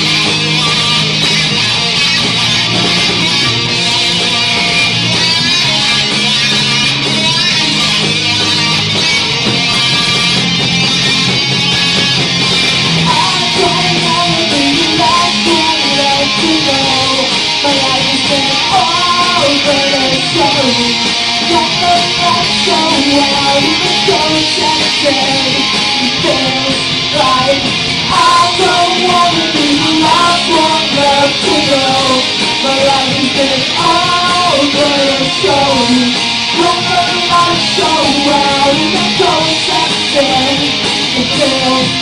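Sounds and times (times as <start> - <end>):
live punk rock guitars: 0.0 - 42.0
person singing: 13.0 - 42.0.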